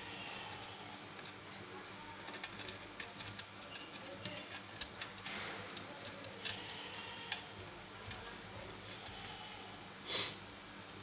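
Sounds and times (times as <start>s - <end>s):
faint low hum: 0.0s - 11.0s
clicks and rustles of wires: 0.9s - 9.3s.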